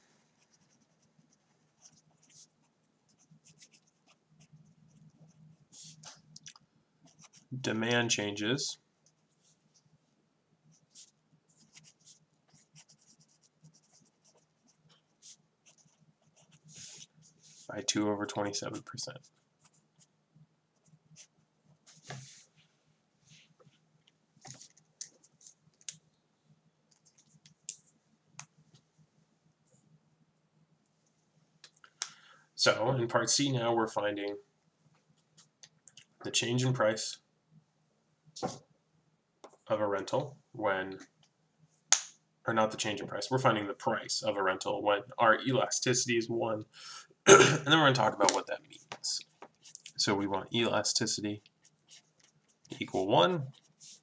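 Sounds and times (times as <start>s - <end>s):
faint low hum: 0.0s - 54.0s.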